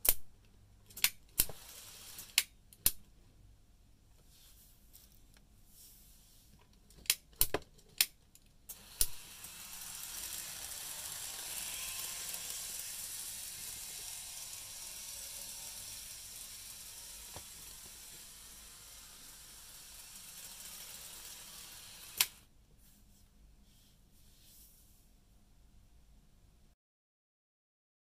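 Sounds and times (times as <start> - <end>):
model train whirring on track: 1.4 - 2.5, 8.7 - 22.5.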